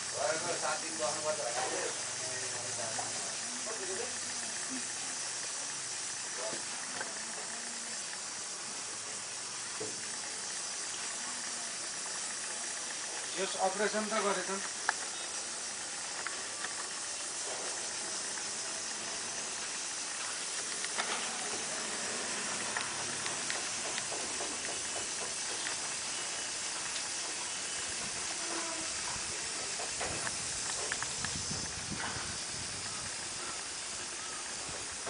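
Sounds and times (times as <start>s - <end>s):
high-pitched hiss: 0.0s - 35.0s
faint clicks: 14.6s - 15.4s, 20.2s - 26.0s, 29.1s - 31.4s.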